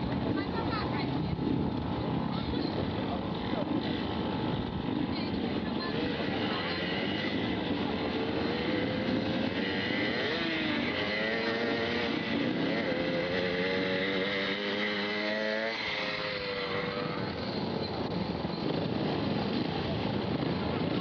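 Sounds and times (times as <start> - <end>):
motorcycle engines revving: 0.0 - 21.0.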